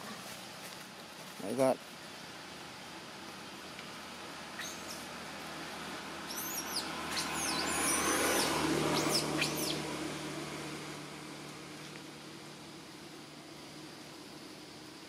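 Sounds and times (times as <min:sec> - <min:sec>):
low background hum: 0:00.0 - 0:15.0
bird chirping: 0:04.5 - 0:05.1, 0:06.2 - 0:09.9.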